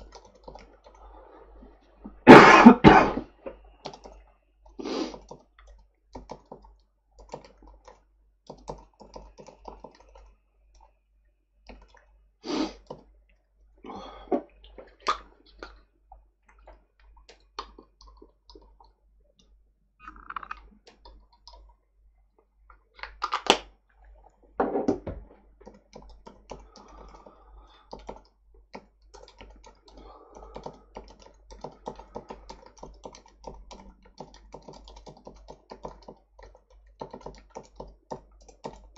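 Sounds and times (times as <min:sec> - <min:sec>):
keyboard thumps: 0:24.6 - 0:25.8.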